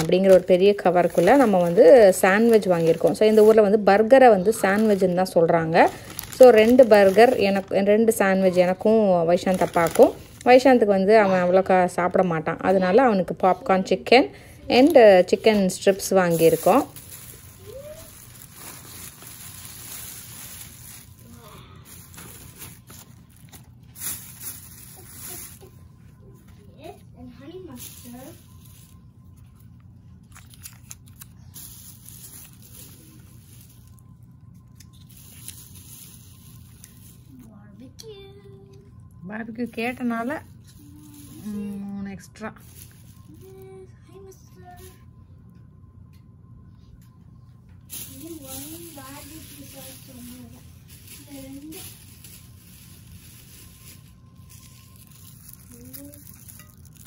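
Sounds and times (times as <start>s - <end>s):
plastic packaging clicks and rustles: 0.0s - 10.7s, 14.7s - 25.8s, 27.7s - 37.5s, 39.7s - 41.9s, 42.6s - 43.7s, 47.8s - 57.0s
low room hum: 0.0s - 57.0s.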